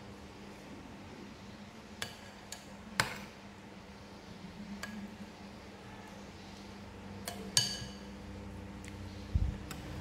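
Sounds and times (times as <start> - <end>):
faint steady hum: 0.0 - 10.0
metal spoons clinking on bowls: 7.2 - 8.2.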